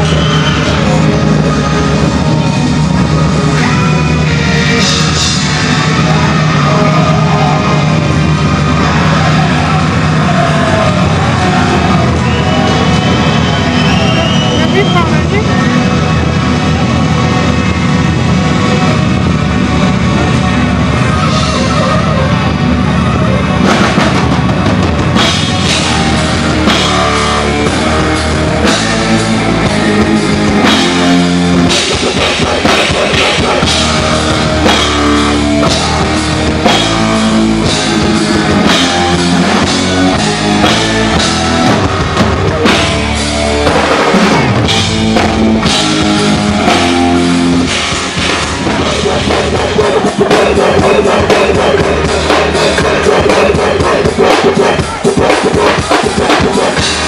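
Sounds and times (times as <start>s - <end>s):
loud rock music: 0.0s - 57.0s
drum kit beat: 23.6s - 57.0s.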